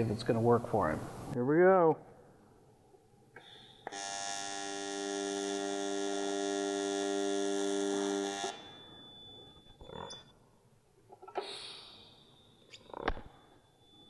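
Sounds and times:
welding arc buzzing: 3.4 - 8.8.

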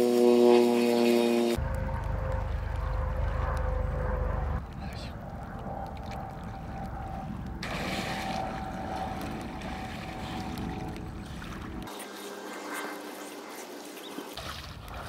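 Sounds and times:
wind rumble on microphone: 0.5 - 12.0
water splashing around swimmer: 6.0 - 15.0.

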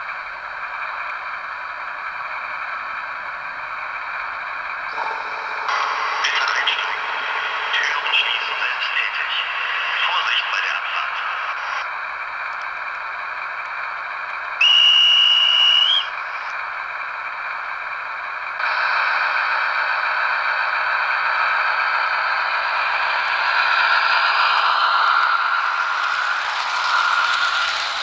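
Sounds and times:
model diesel engine sound: 0.0 - 28.0
high whistle: 14.6 - 16.3.

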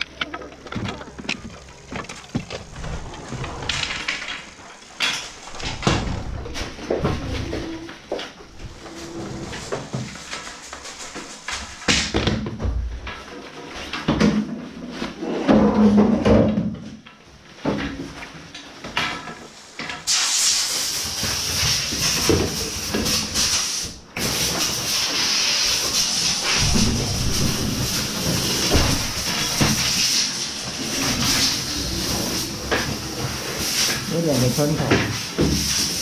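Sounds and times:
ski gear knocking and rustling: 0.0 - 6.8
compressed air blower hissing: 20.1 - 36.0.

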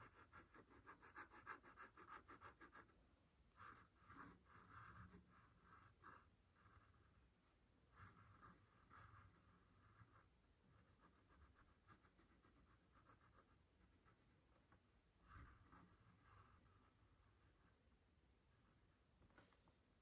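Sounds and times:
pen scratching on paper: 0.0 - 2.9, 3.6 - 7.2, 7.9 - 14.4, 15.2 - 17.7.

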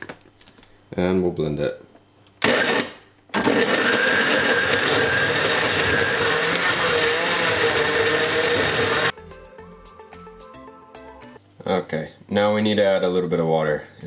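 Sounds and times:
blender running: 2.4 - 9.2.

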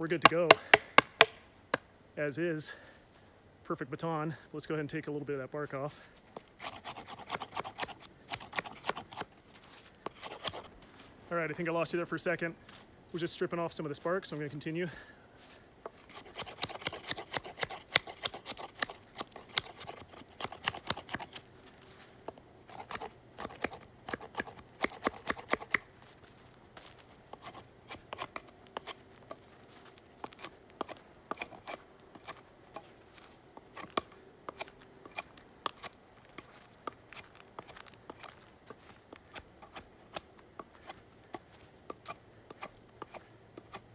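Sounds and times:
knife scraping bark: 6.4 - 10.7, 15.9 - 21.6, 22.6 - 25.9, 26.9 - 43.9.

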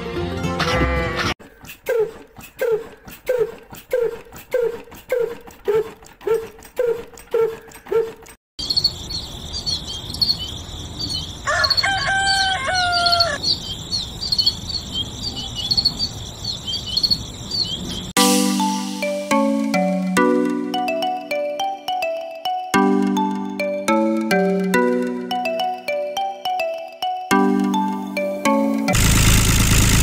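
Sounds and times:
birds chirping: 1.5 - 18.2
crickets chirping: 8.6 - 12.1, 13.1 - 18.1
rooster crowing: 11.3 - 13.5.

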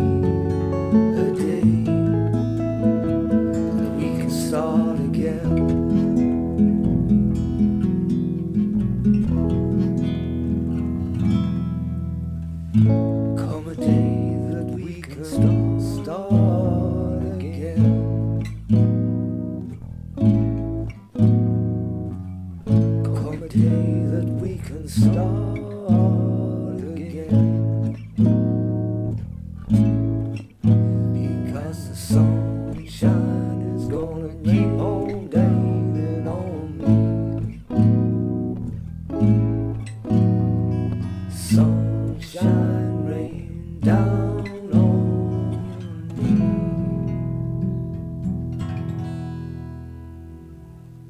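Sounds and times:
acoustic guitar strumming chords: 0.0 - 51.0.

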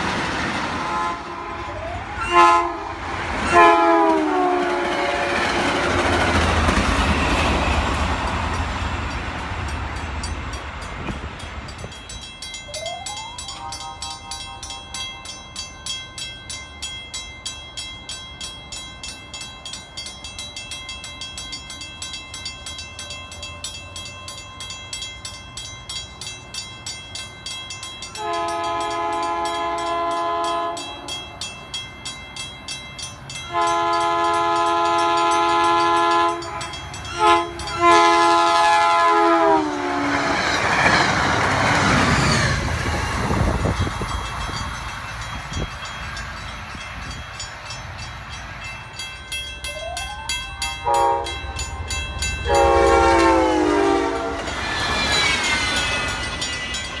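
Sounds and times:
train rumbling and clacking: 0.0 - 57.0
train horn blasts: 0.7 - 6.0, 13.4 - 15.1, 28.2 - 31.2, 33.5 - 40.4, 50.7 - 51.6, 52.4 - 54.6
crossing bell ringing: 1.0 - 57.0.

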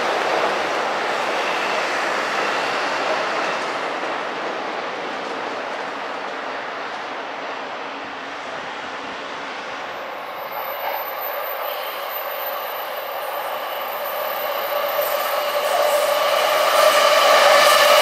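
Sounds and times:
steady train whine: 0.0 - 18.0
electric train running: 10.2 - 18.0.

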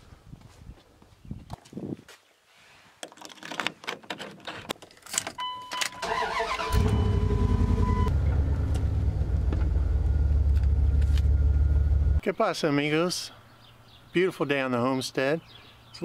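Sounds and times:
dashboard warning chime: 5.4 - 8.2.

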